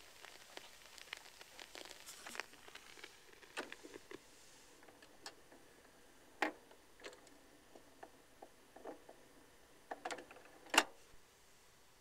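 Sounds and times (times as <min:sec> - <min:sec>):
vinyl clicks and pops: 0:00.0 - 0:04.2
vinyl surface noise: 0:00.0 - 0:11.8.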